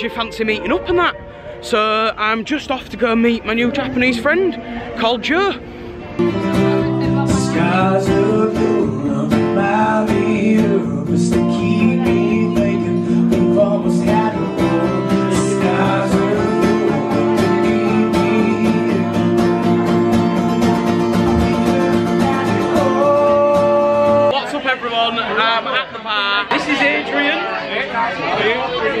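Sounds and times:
acoustic guitar strummed: 0:06.0 - 0:24.4
person singing: 0:06.4 - 0:24.3.

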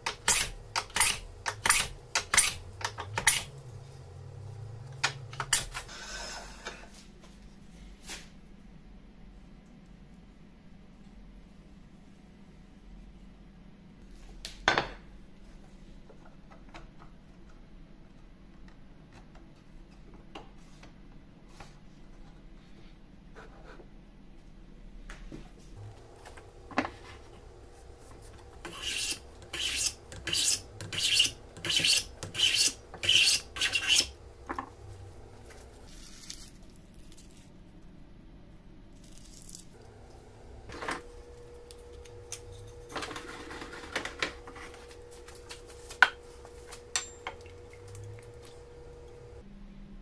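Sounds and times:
edge tool scraping wood strip: 0:00.1 - 0:03.8, 0:27.2 - 0:34.5.

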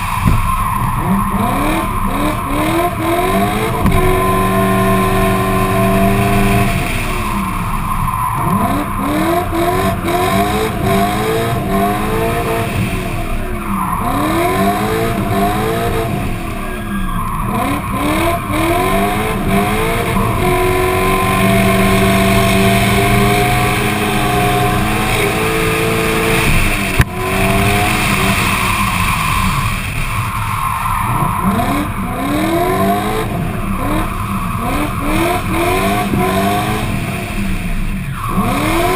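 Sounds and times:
car engine revving: 0:00.0 - 0:38.9
tyres squealing and skidding: 0:00.0 - 0:38.9
sharp knock: 0:00.2 - 0:00.6.

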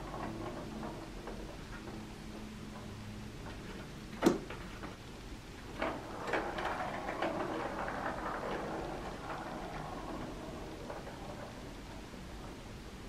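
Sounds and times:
ball knocking in plastic track: 0:05.8 - 0:12.5.

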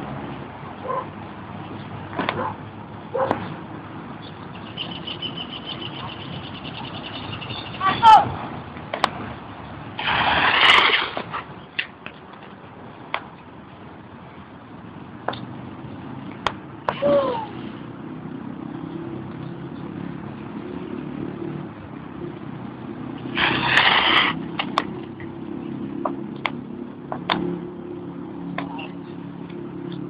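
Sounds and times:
bicycle tyre hiss on wet pavement: 0:10.0 - 0:11.2, 0:23.2 - 0:24.4.

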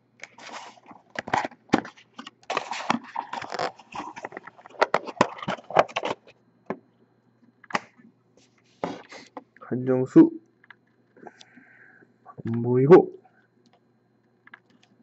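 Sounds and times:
cardboard and paper rustling: 0:00.2 - 0:06.3, 0:08.4 - 0:09.4.

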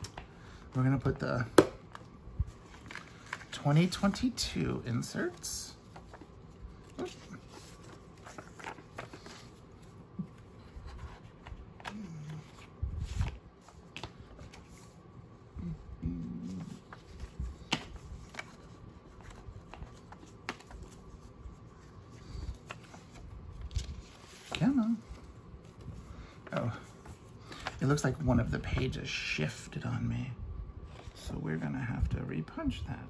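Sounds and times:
paper rustling: 0:02.4 - 0:15.0, 0:16.4 - 0:28.1.

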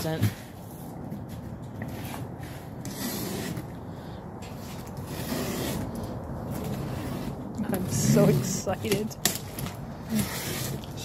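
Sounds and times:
box cutter scraping cardboard: 0:01.8 - 0:03.8, 0:04.4 - 0:11.0
cardboard rubbing: 0:04.5 - 0:11.0.

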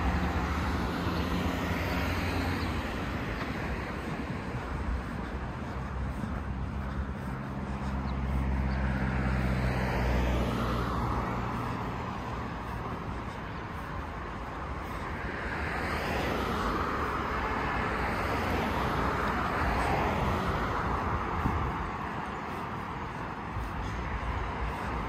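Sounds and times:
vehicle engine running: 0:00.0 - 0:15.2
road noise: 0:00.0 - 0:25.0.

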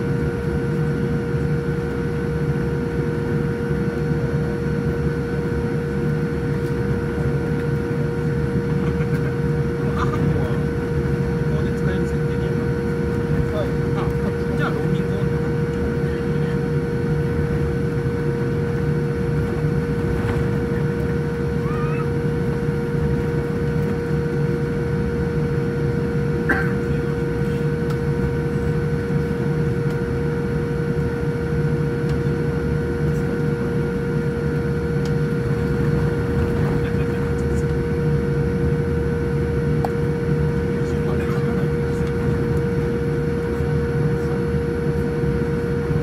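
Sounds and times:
airliner cabin rumble: 0:00.0 - 0:46.0
steady whine: 0:00.0 - 0:46.0.

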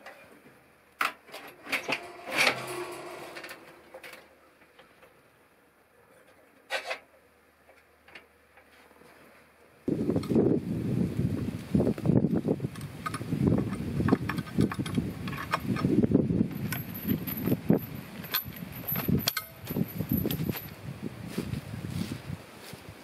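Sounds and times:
rustling and knocking of gear: 0:12.7 - 0:20.8.

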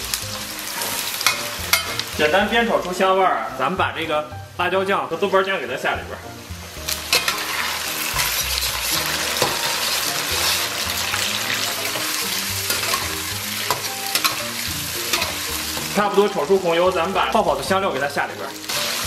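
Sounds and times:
paste sizzling in hot oil: 0:00.0 - 0:04.3, 0:05.2 - 0:19.0
metal spatula scraping a wok: 0:00.6 - 0:02.2, 0:06.8 - 0:16.6.

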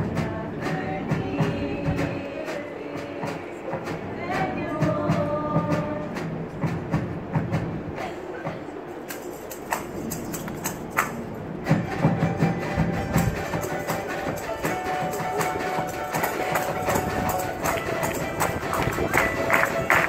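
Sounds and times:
sharp percussion hits: 0:09.1 - 0:20.0.

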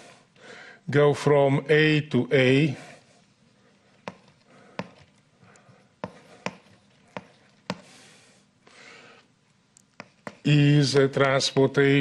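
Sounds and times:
chalk tapping on blackboard: 0:04.0 - 0:05.1, 0:06.0 - 0:08.0, 0:10.0 - 0:10.5
chalk scratching: 0:06.0 - 0:08.0, 0:10.0 - 0:10.5.

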